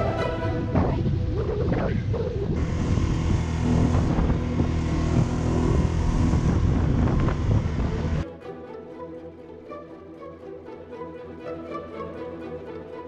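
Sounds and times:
wind buffeting microphone: 0.0s - 8.2s
boat motor running: 2.5s - 8.2s.

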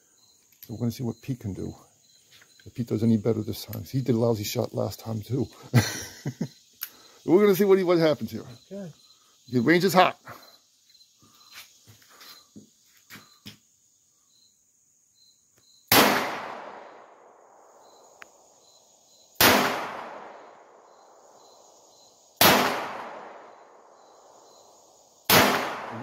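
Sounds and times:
insects buzzing faintly: 0.0s - 26.0s
gun handling clicks: 0.4s - 0.7s
handgun shots echoing: 15.9s - 17.0s, 19.4s - 20.4s, 22.4s - 23.4s, 25.3s - 26.0s.

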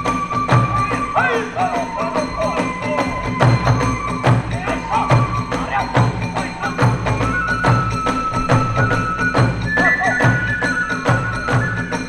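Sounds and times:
large drum beating: 0.0s - 11.7s
bamboo flute playing: 0.0s - 12.0s.

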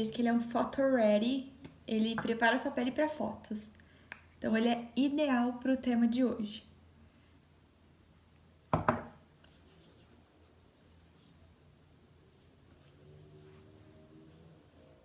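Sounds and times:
fingertips rubbing skin: 9.4s - 14.8s.

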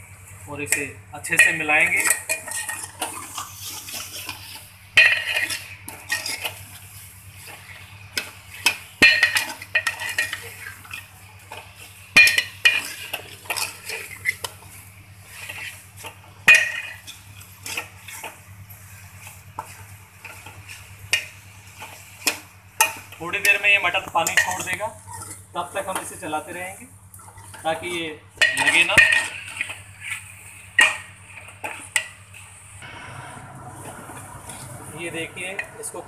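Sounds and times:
metal spoon scraping steel pot: 1.3s - 6.6s.

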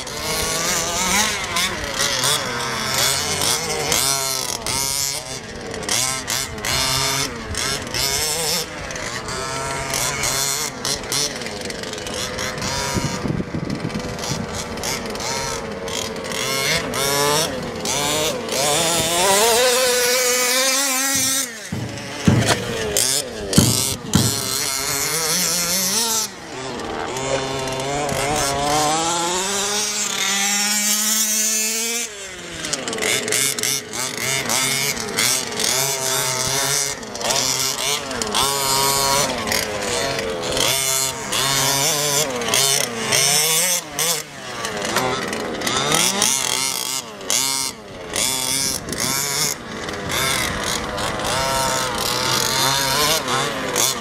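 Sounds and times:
small two-stroke engines revving: 0.0s - 54.0s
sharp knocks: 21.1s - 25.2s.

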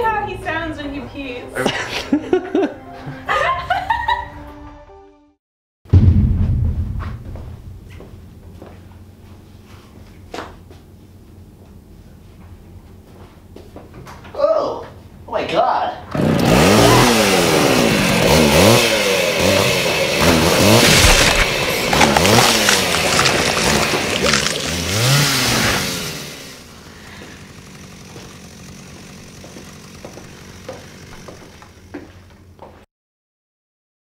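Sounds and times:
chainsaw revving: 16.1s - 32.0s.

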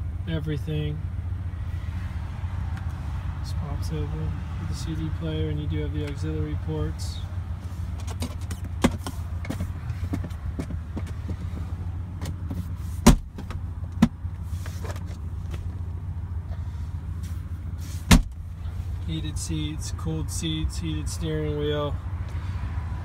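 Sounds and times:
console lid clicks and clunks: 13.0s - 14.2s.

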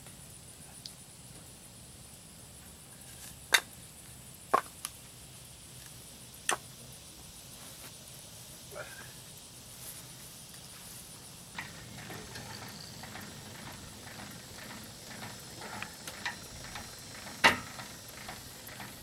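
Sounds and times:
trailer jack cranking clicks and clanks: 11.6s - 19.0s.

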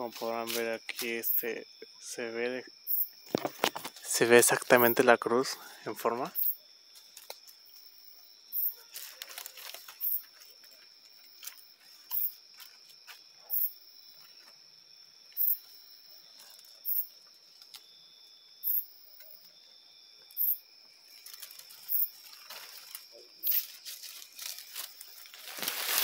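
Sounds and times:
high-pitched cricket trill: 0.0s - 26.0s
very high insect chirp: 0.0s - 26.0s
dry leaves rustling: 8.8s - 13.3s, 21.0s - 26.0s.

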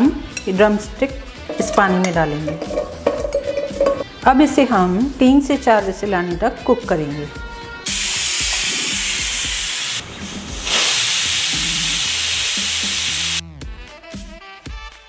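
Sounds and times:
pressure cooker whistling: 7.9s - 10.0s, 10.6s - 13.4s.

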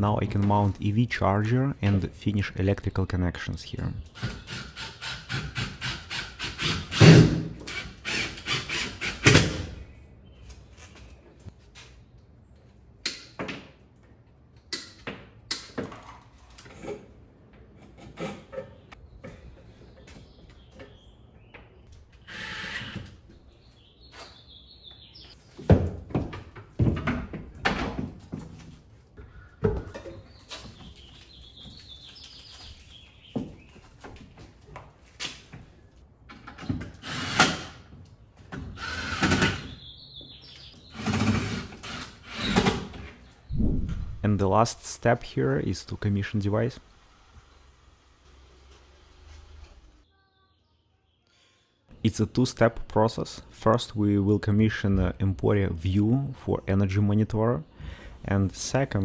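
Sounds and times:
cordless drill driving screws: 22.3s - 23.1s, 37.0s - 37.8s, 38.8s - 39.6s, 41.0s - 42.8s.

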